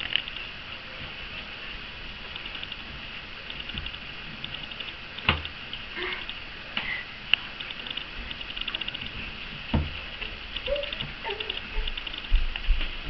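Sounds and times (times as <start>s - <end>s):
faint steady hiss: 0.0s - 13.0s
fast high ticking: 2.3s - 6.4s.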